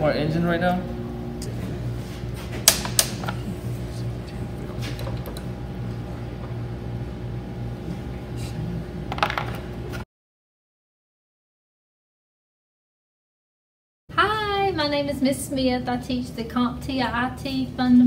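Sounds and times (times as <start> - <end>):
steady machine hum: 0.0 - 10.0, 14.1 - 18.0.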